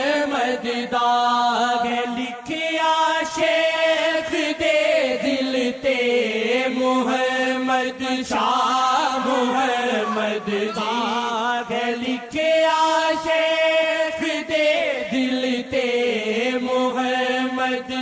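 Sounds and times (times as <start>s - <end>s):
voices singing long wavering notes: 9.0s - 12.2s.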